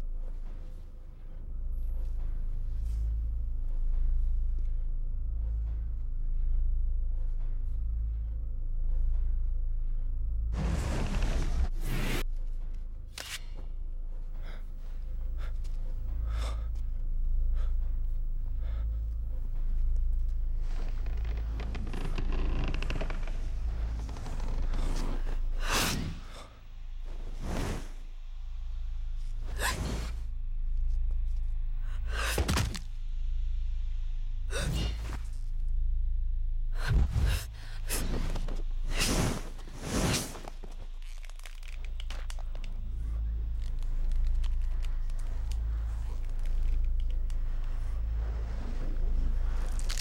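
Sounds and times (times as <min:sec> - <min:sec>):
low steady drone: 0:00.0 - 0:50.0
steady low rumble: 0:00.0 - 0:50.0.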